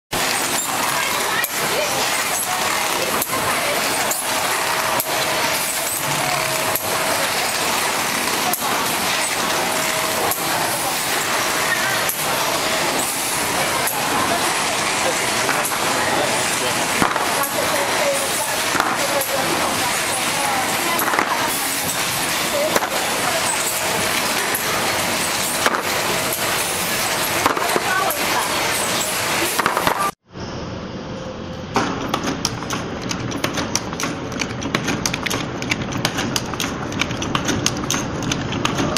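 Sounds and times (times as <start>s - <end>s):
machine hissing: 0.1s - 30.2s
sharp machine clack: 0.1s - 30.2s
clicks and clatter: 20.9s - 30.2s, 31.8s - 38.9s.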